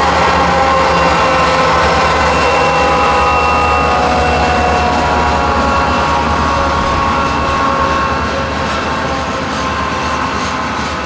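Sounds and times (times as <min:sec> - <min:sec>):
diesel locomotive engine rumble: 0:00.0 - 0:11.0
steady whine: 0:00.0 - 0:11.0.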